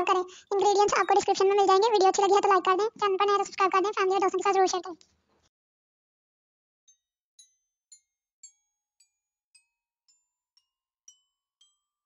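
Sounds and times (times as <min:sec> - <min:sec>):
glockenspiel-like bell notes: 0:06.9 - 0:12.0.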